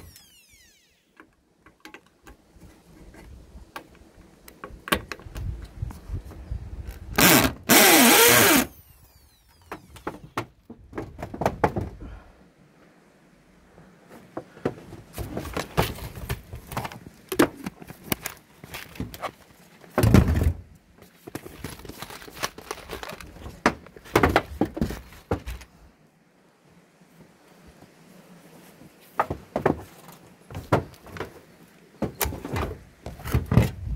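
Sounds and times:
electric drill spinning: 0.0s - 1.2s, 7.2s - 9.9s
clicks and rattles of handling: 1.2s - 6.0s, 14.2s - 20.1s, 21.0s - 25.7s.

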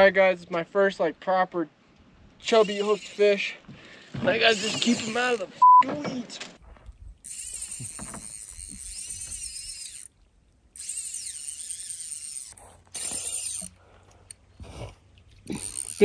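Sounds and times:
fly reel drag buzzing: 2.5s - 3.4s, 7.2s - 14.4s, 15.5s - 16.0s.

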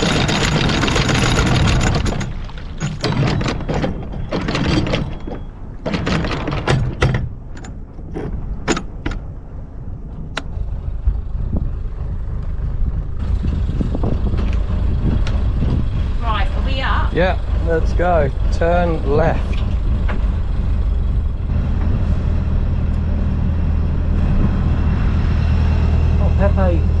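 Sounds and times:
anchor chain clanking: 0.0s - 9.4s
steady low rumble: 6.8s - 27.0s.

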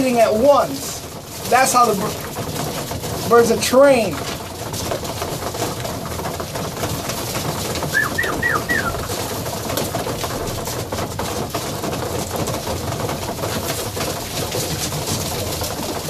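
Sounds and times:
pigeons pecking: 0.0s - 16.0s
pigeon wingbeats: 4.1s - 16.0s
pigeons cooing: 7.8s - 9.4s.

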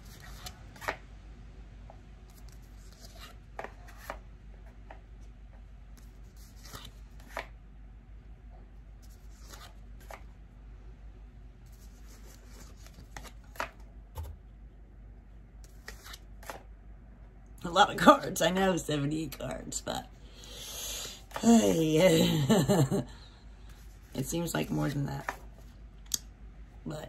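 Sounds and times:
low steady hum: 0.0s - 27.0s
cards flipped and laid down: 12.4s - 14.4s, 15.7s - 16.6s.

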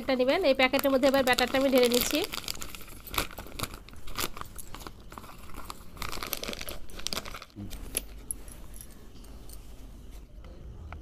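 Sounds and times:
plastic packet crinkling: 0.0s - 8.1s.

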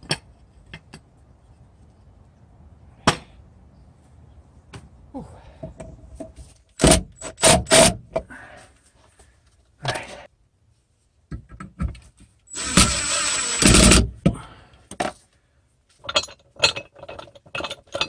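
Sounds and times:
power driver driving a screw: 12.5s - 14.1s.

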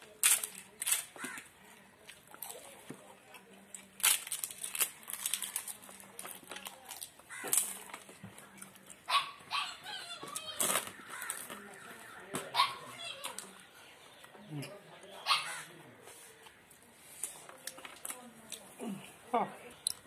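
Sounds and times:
crunching and chewing: 0.0s - 14.3s.

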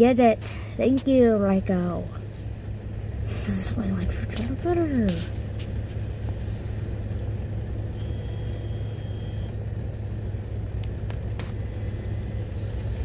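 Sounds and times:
car idling: 0.0s - 13.0s
faint high beep: 7.9s - 9.6s.

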